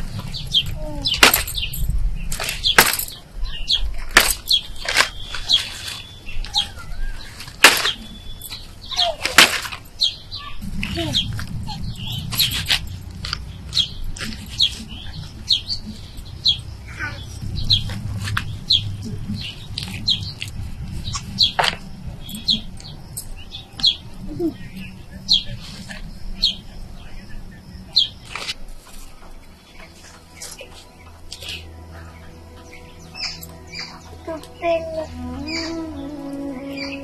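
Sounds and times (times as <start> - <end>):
leafy stems rustling: 0.0 - 27.2, 27.8 - 37.0
small birds chirping: 0.0 - 37.0
stalks snapping: 1.2 - 1.6, 4.0 - 6.0, 7.4 - 8.1, 9.2 - 9.8.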